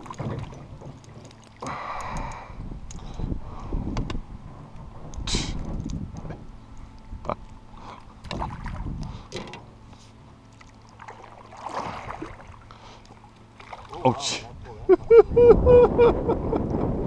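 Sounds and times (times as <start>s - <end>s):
paddle splashing in water: 10.0s - 14.2s.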